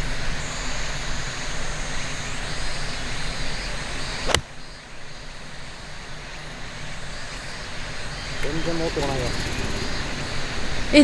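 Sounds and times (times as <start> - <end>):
steady background hiss: 0.0 - 11.0
golf club striking ball: 4.2 - 4.5.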